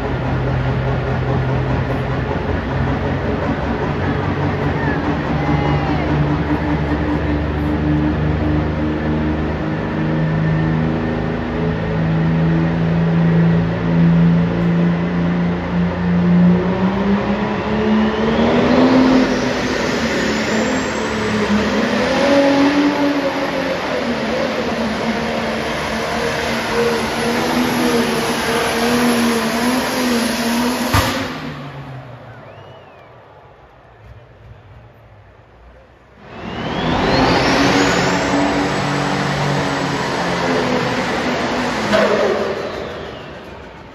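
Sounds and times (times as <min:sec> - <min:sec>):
tractor engine revving: 0:00.0 - 0:43.9
turbo whine: 0:35.7 - 0:43.9.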